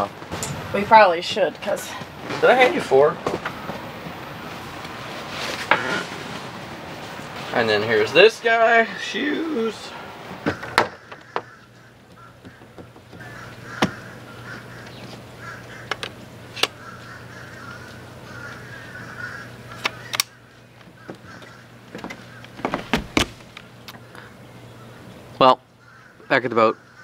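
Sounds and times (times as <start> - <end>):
birds calling: 0.0 - 27.0
steady low hum: 0.0 - 27.0.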